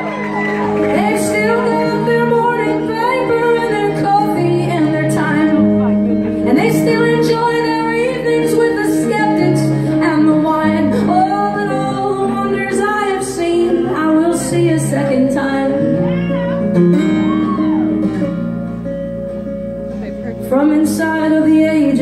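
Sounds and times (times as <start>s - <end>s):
woman singing: 0.0s - 5.6s, 6.4s - 16.8s, 20.4s - 22.0s
acoustic guitar: 0.0s - 22.0s.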